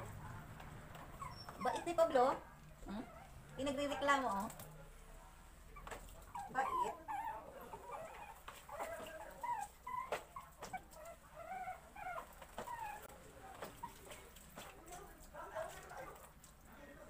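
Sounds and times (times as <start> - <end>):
puppies whimpering: 1.0 - 2.2, 5.8 - 14.2.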